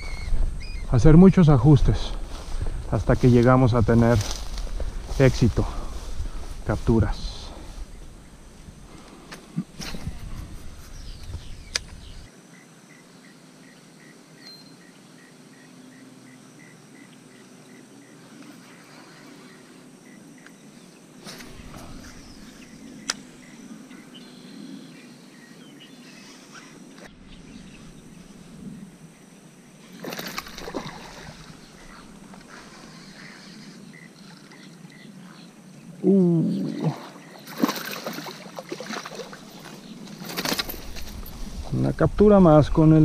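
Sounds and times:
faint high chirp: 11.0s - 18.2s.

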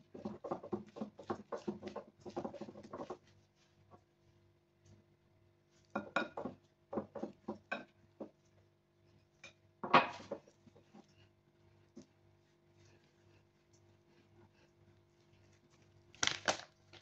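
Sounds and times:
mixing bowl knocking on stone counter: 0.0s - 3.3s, 5.9s - 8.4s.

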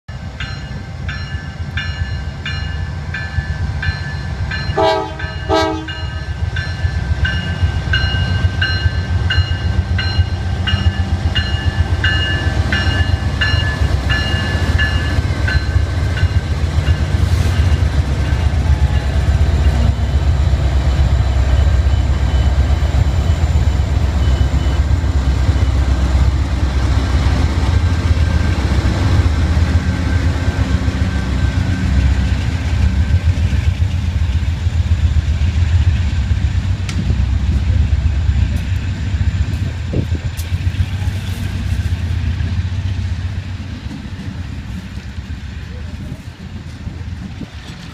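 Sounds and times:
locomotive bell ringing: 0.1s - 26.6s
diesel locomotive engine rumble: 0.1s - 47.9s
locomotive horn blasts: 4.7s - 6.3s.

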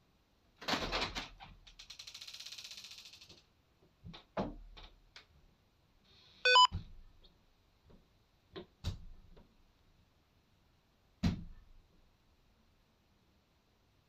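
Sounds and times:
electronic beep sequence: 6.5s - 6.7s.

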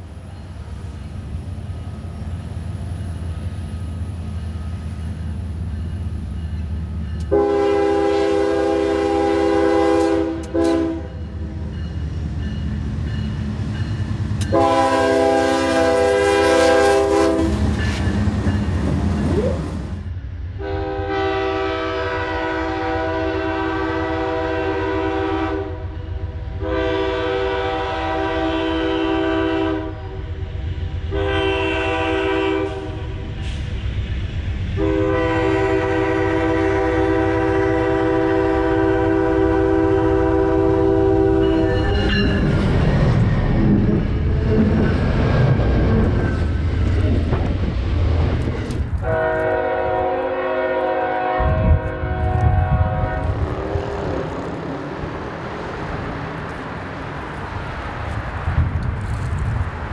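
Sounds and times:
moving train rumble: 0.0s - 59.9s
locomotive air horn chords: 7.3s - 11.2s, 14.5s - 17.6s, 20.6s - 30.3s, 31.1s - 33.1s, 34.8s - 41.9s, 49.0s - 53.8s.

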